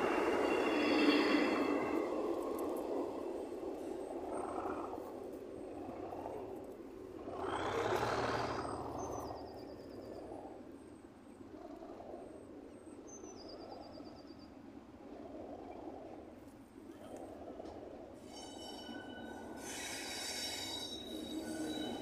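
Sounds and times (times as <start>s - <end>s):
distant diesel locomotive engine: 0.0s - 11.5s, 15.7s - 22.0s
birds chirping: 7.2s - 10.5s.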